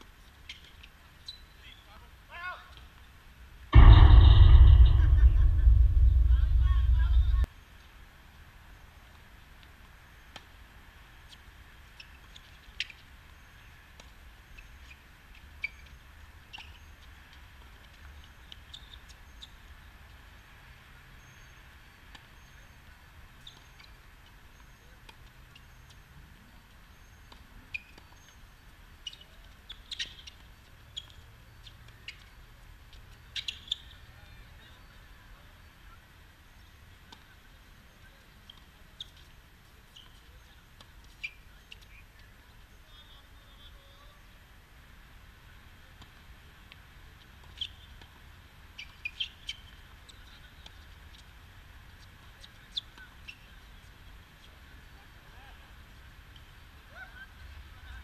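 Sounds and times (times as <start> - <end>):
faint outdoor background: 0.0 - 58.0.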